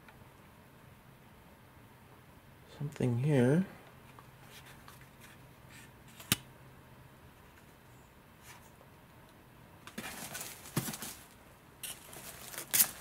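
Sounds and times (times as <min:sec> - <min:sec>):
handling packing material: 0:09.9 - 0:13.0
packaging rustling and crinkling: 0:09.9 - 0:13.0.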